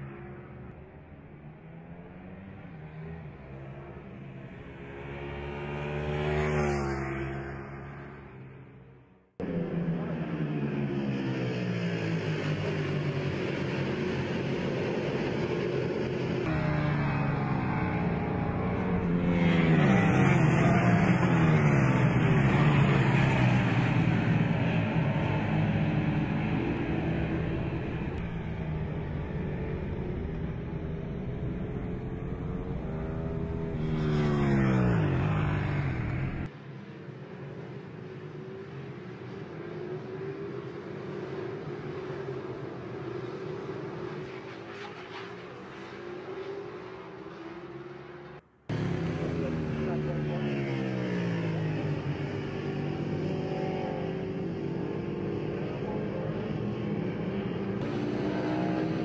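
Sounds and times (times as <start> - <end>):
racing motorcycle engines passing: 0.0 - 59.0
motorcycle engine at high revs: 48.7 - 59.0.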